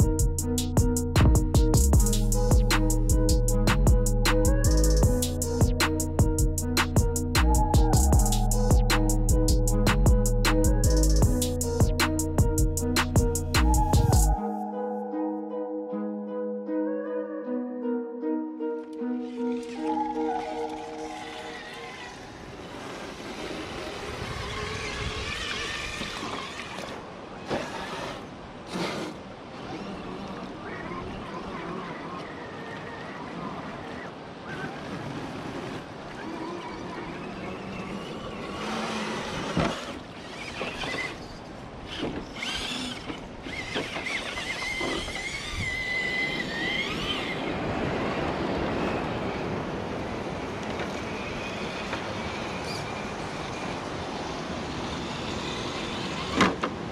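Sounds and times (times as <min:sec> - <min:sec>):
wind: 0:00.0 - 0:17.4, 0:18.0 - 0:56.9
water rushing: 0:19.1 - 0:50.6
electric motor and drivetrain: 0:19.2 - 0:56.9.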